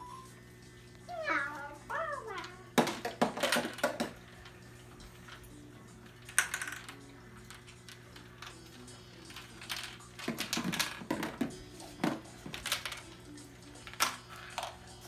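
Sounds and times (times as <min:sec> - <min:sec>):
marbles clicking on plastic track: 0:02.3 - 0:04.6, 0:06.0 - 0:13.2, 0:13.8 - 0:14.8.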